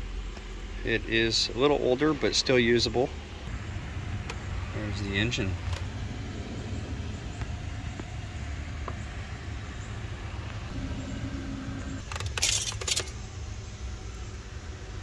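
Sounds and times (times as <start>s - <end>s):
low rumble: 3.1s - 12.0s.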